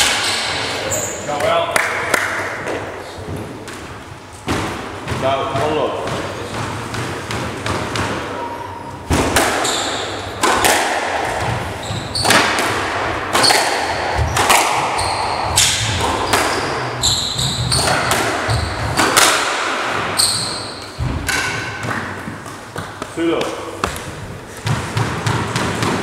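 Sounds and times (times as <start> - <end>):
squash ball hits echoing: 0.0 - 26.0
shoes squeaking on wooden floor: 11.5 - 12.5, 14.2 - 19.0, 20.0 - 21.0.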